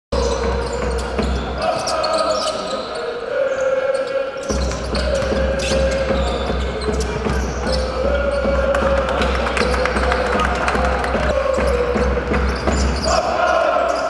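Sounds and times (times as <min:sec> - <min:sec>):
voices in hall: 0:00.2 - 0:14.0.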